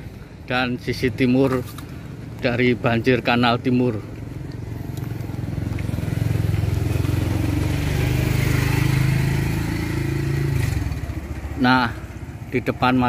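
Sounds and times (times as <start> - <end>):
vehicle engine running: 3.1 - 13.0.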